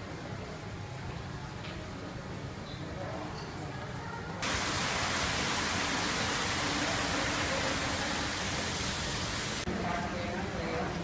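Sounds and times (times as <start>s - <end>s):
loud broadband hiss: 4.4s - 10.4s.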